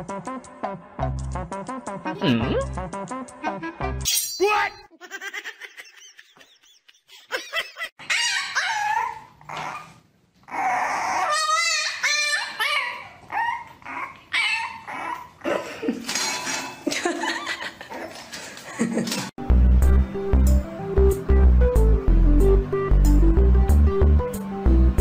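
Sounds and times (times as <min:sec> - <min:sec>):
dogs whining and yipping: 0:08.0 - 0:15.5.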